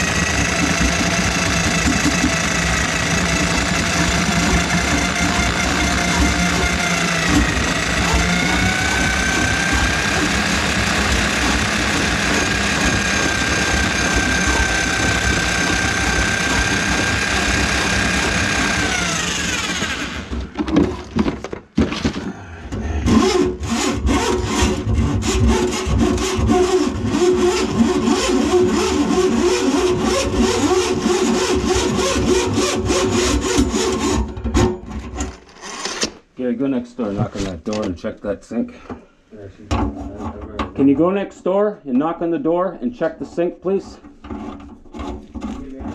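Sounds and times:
drain auger motor running: 0:00.0 - 0:20.9, 0:23.1 - 0:34.3.

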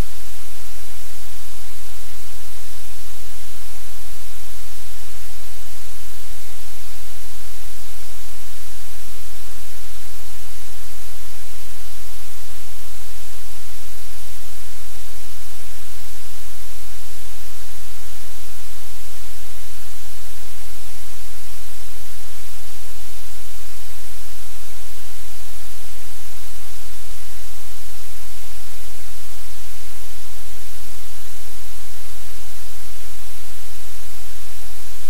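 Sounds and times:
static-like hiss: 0:00.0 - 0:35.0.

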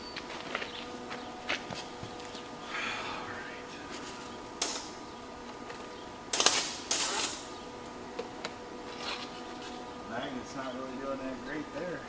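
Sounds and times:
steady hum: 0:00.0 - 0:12.0
welding arc crackling: 0:03.6 - 0:12.0.

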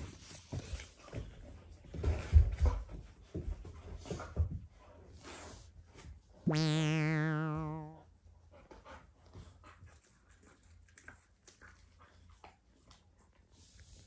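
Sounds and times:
synthesized wavering tone: 0:06.5 - 0:08.0.

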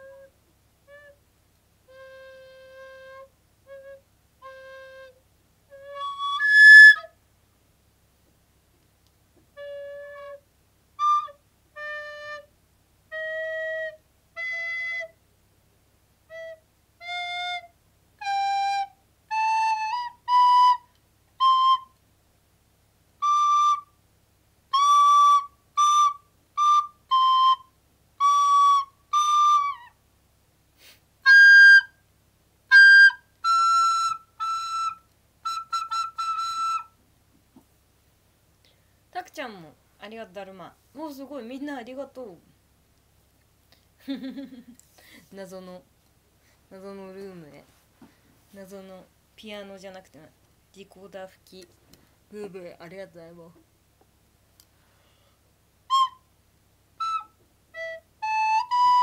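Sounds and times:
recorder notes: 0:01.8 - 0:07.2, 0:32.7 - 0:37.0, 0:57.0 - 0:59.0.

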